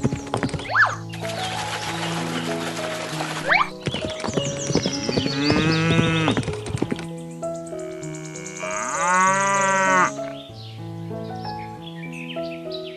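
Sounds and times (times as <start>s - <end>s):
background music: 0.0s - 12.9s
cow mooing: 5.0s - 6.4s, 8.0s - 10.2s.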